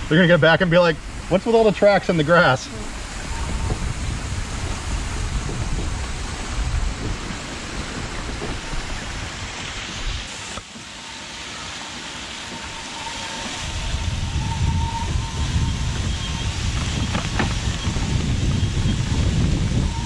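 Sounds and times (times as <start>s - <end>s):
wheelchair rushing through wet grass: 1.0s - 20.0s
low rumble: 2.6s - 10.3s, 12.6s - 20.0s.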